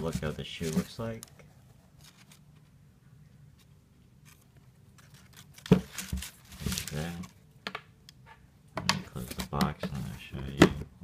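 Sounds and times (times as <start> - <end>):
tissue paper crinkling: 4.2 - 7.3.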